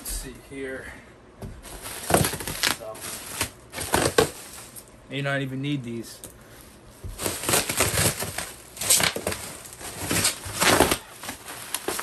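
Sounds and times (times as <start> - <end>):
bubble wrap crinkling: 1.6 - 4.9, 7.0 - 12.0.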